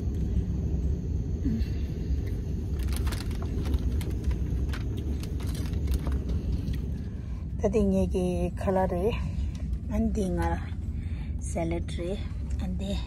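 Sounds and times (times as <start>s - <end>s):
train rumble inside carriage: 0.0s - 13.0s.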